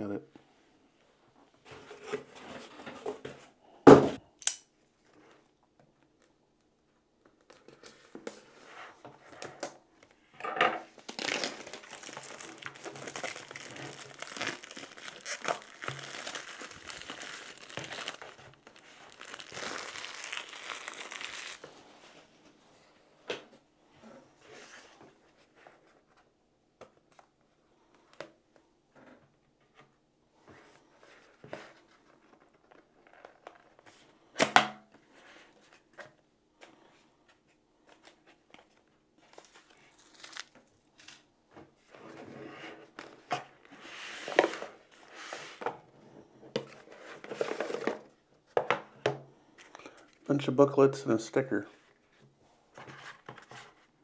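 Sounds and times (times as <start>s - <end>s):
cardboard rustling and scraping: 1.6s - 3.5s, 41.8s - 45.8s, 46.5s - 48.1s, 52.7s - 54.0s.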